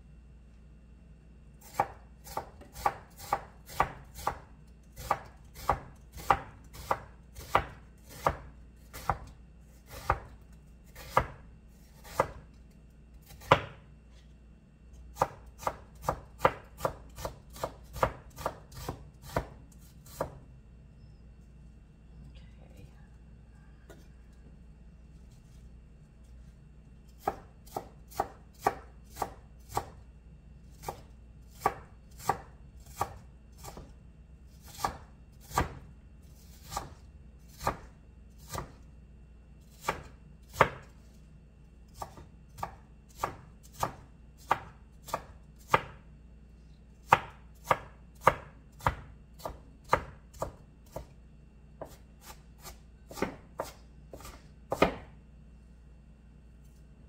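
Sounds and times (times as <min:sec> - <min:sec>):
knife chopping on wooden board: 0:01.6 - 0:09.3, 0:09.9 - 0:11.4, 0:12.0 - 0:12.5, 0:13.2 - 0:13.8, 0:15.2 - 0:20.4, 0:27.2 - 0:30.0, 0:30.8 - 0:33.9, 0:34.6 - 0:35.9, 0:36.6 - 0:38.8, 0:39.8 - 0:40.9, 0:41.9 - 0:46.0, 0:47.0 - 0:51.1, 0:51.8 - 0:55.2.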